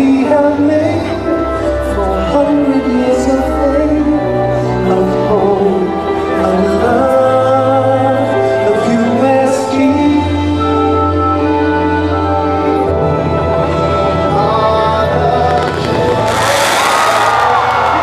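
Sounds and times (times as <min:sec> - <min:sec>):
singing with slow held notes: 0:09.8 - 0:18.0
steady bass: 0:15.0 - 0:18.0.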